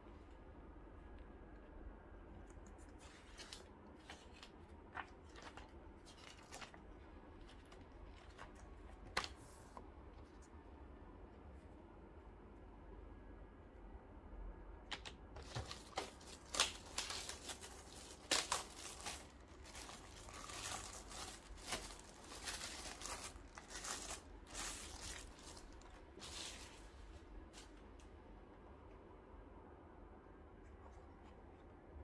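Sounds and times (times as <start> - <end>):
plastic bag crinkling: 15.4 - 26.9.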